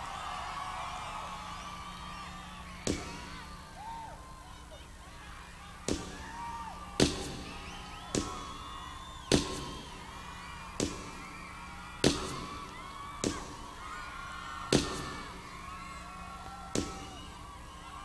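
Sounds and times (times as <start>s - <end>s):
echoing percussion hits: 0.0s - 3.8s, 5.9s - 8.6s, 9.3s - 13.8s, 14.7s - 15.6s, 16.7s - 17.3s
crowd screaming and whistling: 0.0s - 18.0s.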